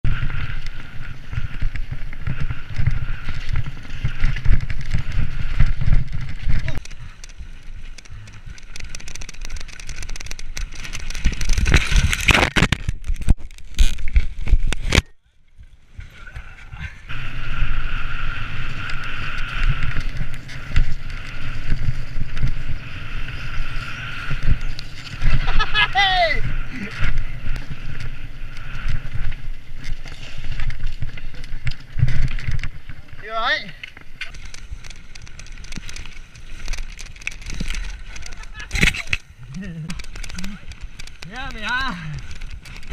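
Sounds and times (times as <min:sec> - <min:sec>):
bike tyre noise: 0:00.0 - 0:42.9
chain and bike rattling: 0:03.2 - 0:12.3, 0:29.8 - 0:42.9.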